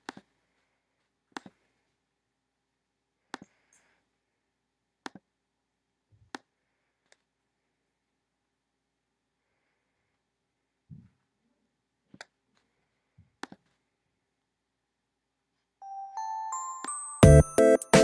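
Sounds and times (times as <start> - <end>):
computer mouse clicks: 0.0 - 0.3, 1.3 - 1.6, 5.0 - 5.3, 13.4 - 13.7.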